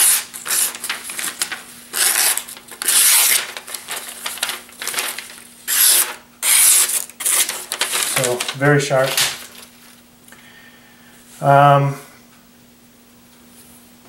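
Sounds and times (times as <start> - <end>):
knife blade slicing paper: 0.0 - 9.7
paper rustling: 0.0 - 10.0.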